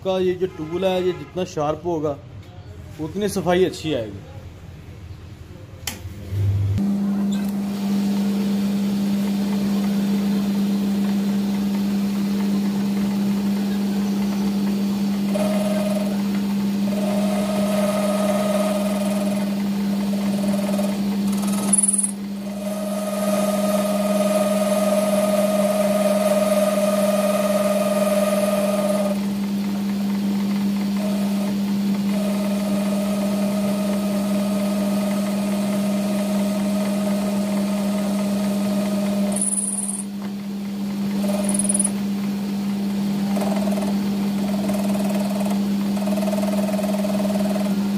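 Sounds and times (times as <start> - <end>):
cutting tool whine: 6.8 - 29.6, 30.7 - 40.1, 41.1 - 42.0
lathe humming: 6.8 - 40.1, 40.9 - 42.0, 43.1 - 47.9.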